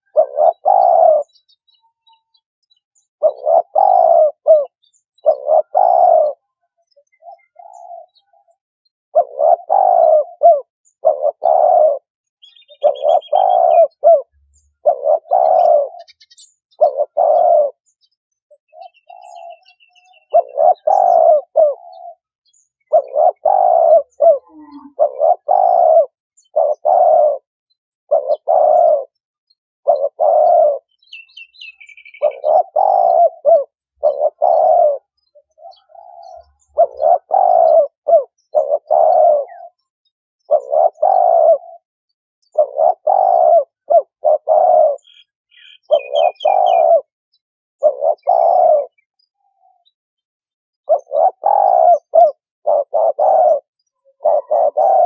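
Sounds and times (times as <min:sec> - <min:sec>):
turtle dove cooing: 0:00.0 - 0:17.9, 0:18.5 - 0:55.0
high bird twittering: 0:12.4 - 0:17.8, 0:18.5 - 0:27.5, 0:29.8 - 0:41.8, 0:42.5 - 0:47.1, 0:50.9 - 0:55.0.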